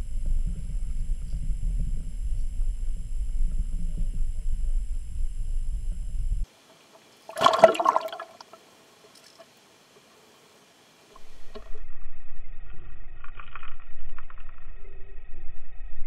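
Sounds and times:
underwater water rumble: 0.0s - 6.5s, 11.2s - 16.0s
bubbly underwater splash: 7.3s - 8.6s.

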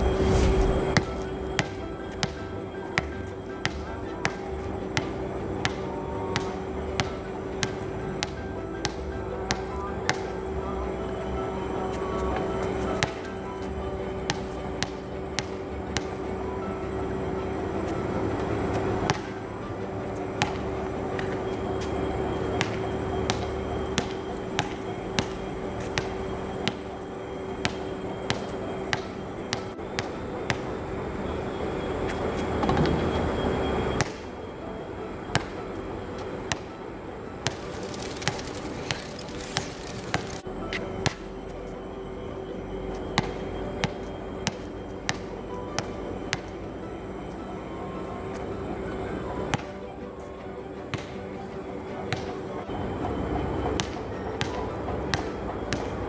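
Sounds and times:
steady hum: 0.0s - 56.0s
ball striking rim and backboard: 0.9s - 2.4s, 3.0s - 5.8s, 19.1s - 19.3s, 22.6s - 26.8s, 27.6s - 30.6s
basketball bouncing: 0.9s - 10.3s, 13.0s - 13.2s, 19.1s - 19.4s, 20.4s - 20.6s, 22.6s - 26.8s, 27.6s - 30.7s, 37.4s - 40.4s.

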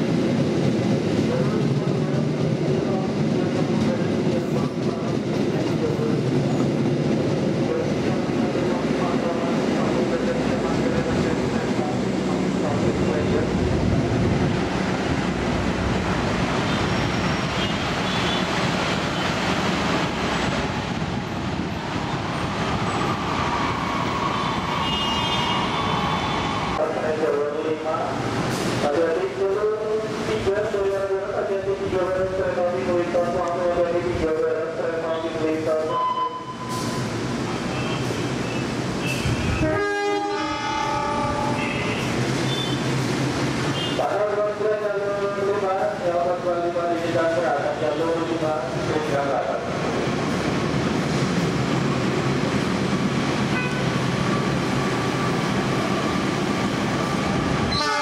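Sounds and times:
train wheel rumble: 0.0s - 27.3s
diesel locomotive engine drone: 0.0s - 58.0s
train wheels rumbling on rails: 0.0s - 58.0s
train horn blast: 24.8s - 25.7s, 39.1s - 42.8s, 53.5s - 53.9s, 57.7s - 58.0s.

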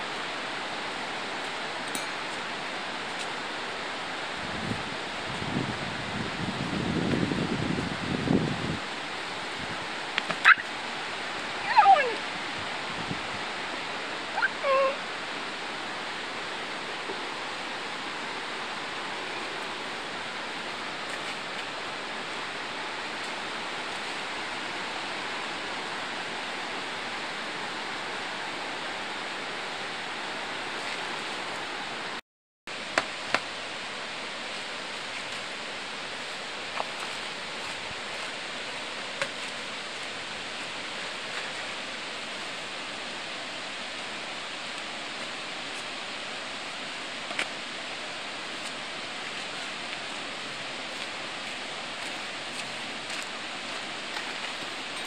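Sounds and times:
flowing water rushing: 0.0s - 55.0s.

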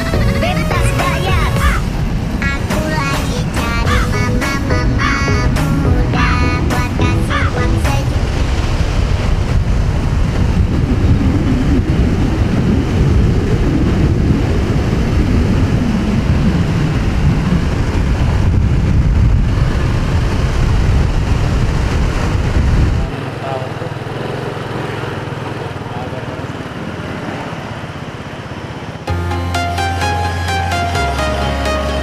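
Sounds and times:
wind noise on microphone: 0.0s - 23.2s
motorcycle engine running: 0.0s - 29.3s.

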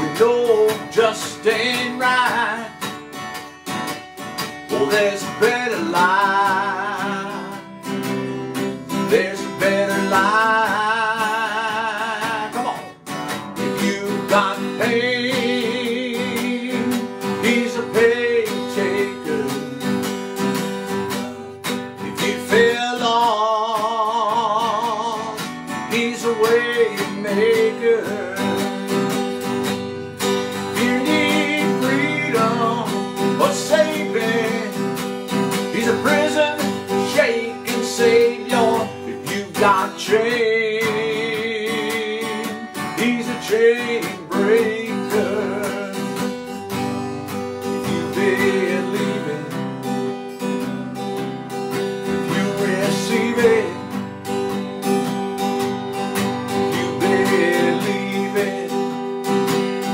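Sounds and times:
man singing with vibrato: 0.0s - 3.2s, 4.4s - 59.9s
acoustic guitar strumming: 0.0s - 59.9s.

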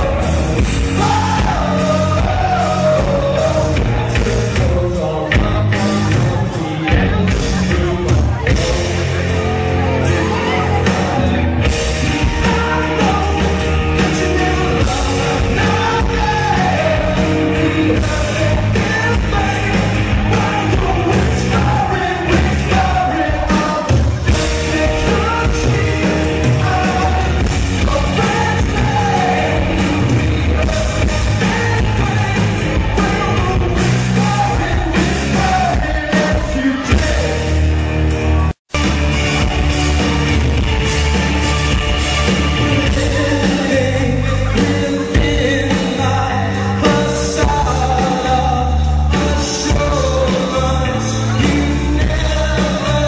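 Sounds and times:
male singer: 0.0s - 37.8s, 42.3s - 53.0s
drums: 0.0s - 53.0s
keyboards: 0.0s - 53.0s.

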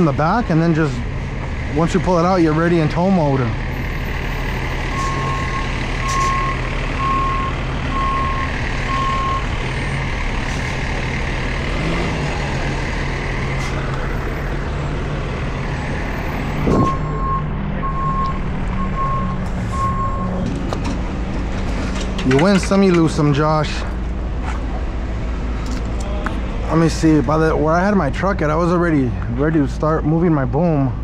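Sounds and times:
tow truck engine running: 0.0s - 31.0s
reversing alarm beeping: 4.9s - 9.6s, 16.3s - 20.4s.

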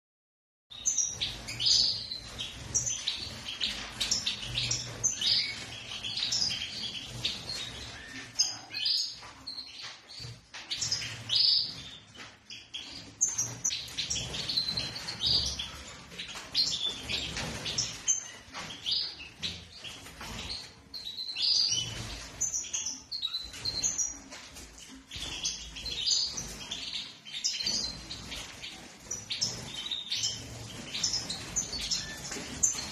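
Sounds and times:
birds chirping and twittering: 0.7s - 32.9s.

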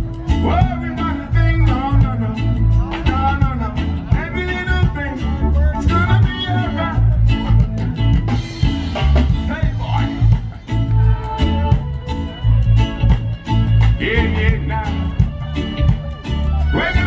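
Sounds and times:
heavy bass beat: 0.0s - 17.0s
person singing: 9.8s - 17.0s.

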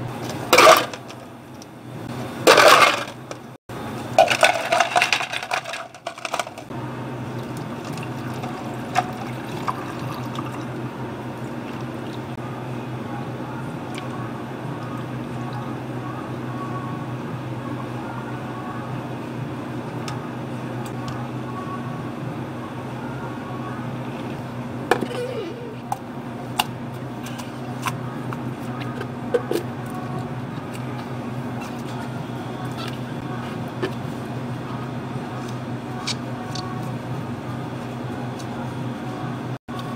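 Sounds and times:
low hum of cafe equipment: 0.0s - 39.9s
ice cubes clattering into cup: 2.5s - 3.1s, 4.2s - 6.6s
ice clinking: 4.2s - 6.6s.

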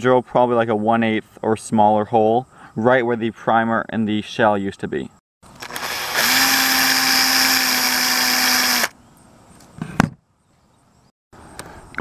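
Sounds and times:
power drill boring through brass: 5.6s - 8.9s.

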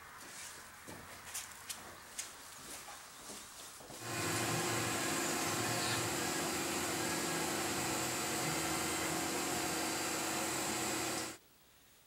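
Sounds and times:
milling machine humming: 4.0s - 11.4s.

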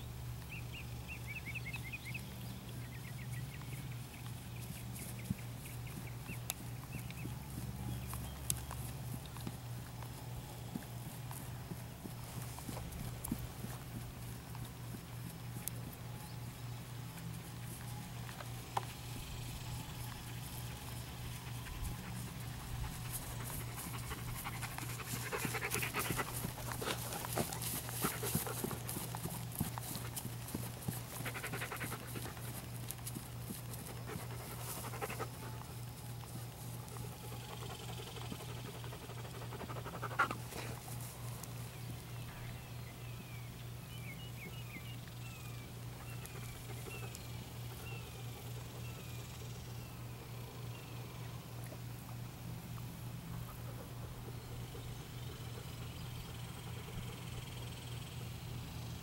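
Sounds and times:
soft hoofbeats on grass: 0.0s - 59.0s
horse panting: 20.3s - 41.9s, 53.3s - 58.2s.

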